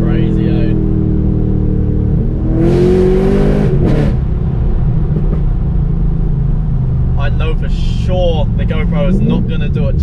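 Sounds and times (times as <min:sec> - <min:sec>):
car engine accelerating hard: 0:00.0 - 0:05.6, 0:06.9 - 0:10.0.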